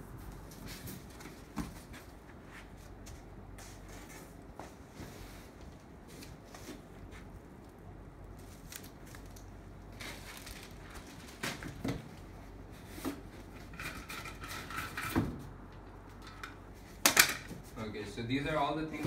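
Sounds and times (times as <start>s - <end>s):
plastic and foam crinkling: 8.3s - 13.6s.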